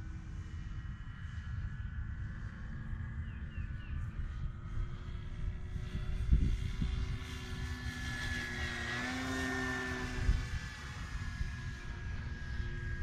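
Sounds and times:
model plane motor whining: 0:00.0 - 0:13.0
wind rumbling on microphone: 0:00.0 - 0:13.0.

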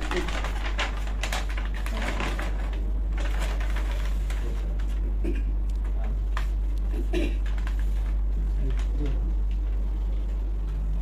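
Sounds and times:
paper rustling and crackling: 0:00.0 - 0:05.1, 0:05.8 - 0:11.0
steady low hum: 0:00.0 - 0:11.0.

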